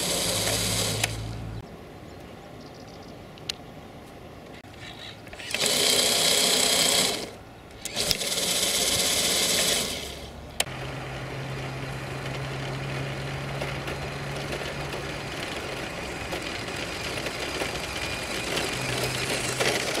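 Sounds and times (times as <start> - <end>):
toy truck motor whirring: 0.0 - 1.4, 4.7 - 10.7, 12.1 - 20.0
low hum: 10.0 - 20.0.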